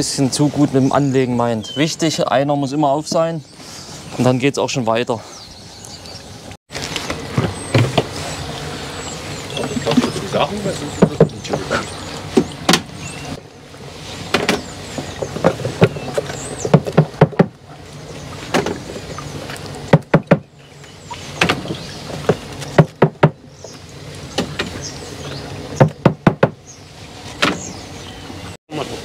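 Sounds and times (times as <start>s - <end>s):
wooden sticks knocking plastic barrel: 15.3s - 17.6s.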